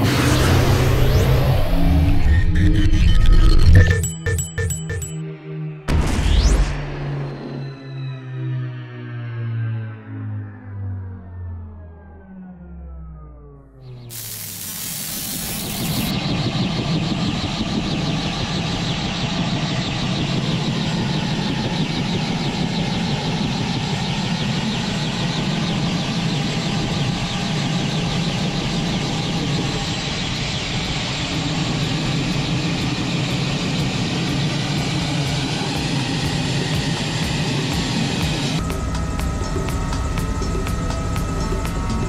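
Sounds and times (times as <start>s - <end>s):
helicopter idling with rotor chop: 14.1s - 42.0s.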